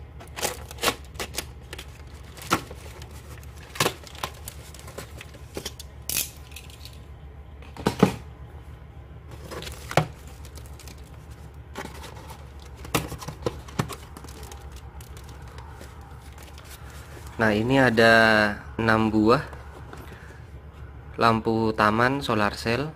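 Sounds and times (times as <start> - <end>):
plastic bag tearing: 0.3 - 4.9.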